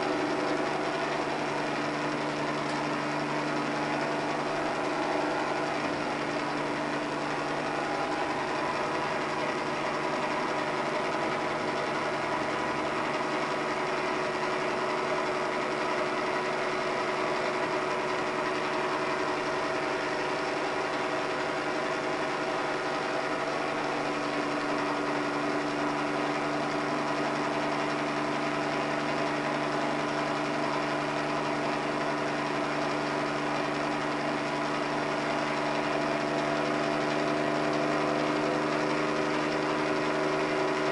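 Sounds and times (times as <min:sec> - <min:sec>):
helicopter engine and rotor drone: 0:00.0 - 0:40.9.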